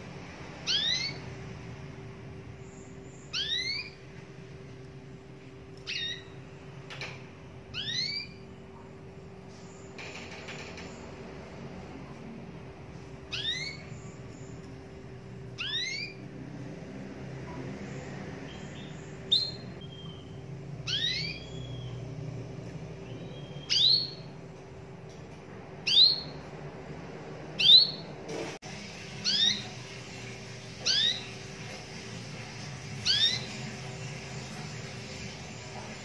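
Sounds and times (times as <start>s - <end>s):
canary call notes: 0.6s - 1.3s, 3.2s - 4.0s, 7.7s - 8.6s, 13.3s - 14.2s, 15.6s - 16.3s, 18.5s - 22.0s, 29.2s - 31.6s, 33.0s - 34.5s.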